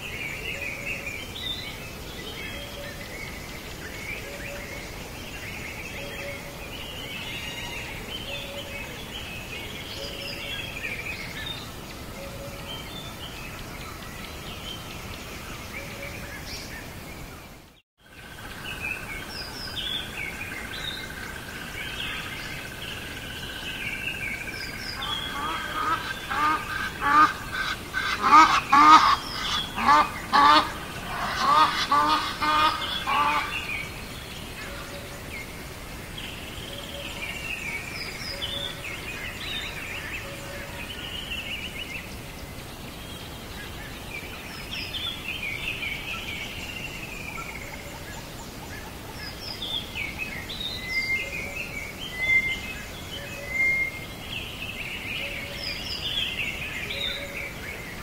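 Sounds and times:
birds chirping: 0.0s - 58.0s
birds honking: 25.0s - 33.8s.

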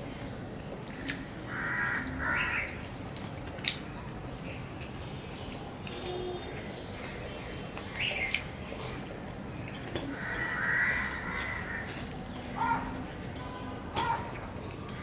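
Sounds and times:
mouth clicks while eating: 0.9s - 1.9s, 2.7s - 6.6s, 8.2s - 8.6s
crow cawing: 1.5s - 2.8s, 10.1s - 12.0s.

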